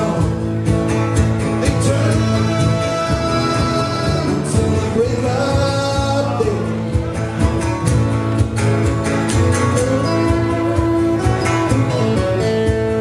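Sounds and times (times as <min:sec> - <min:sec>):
man singing: 0:00.0 - 0:07.1, 0:09.7 - 0:12.1
drum kit: 0:00.0 - 0:13.0
strummed acoustic guitars: 0:00.0 - 0:13.0
harmonica playing held notes: 0:09.8 - 0:13.0.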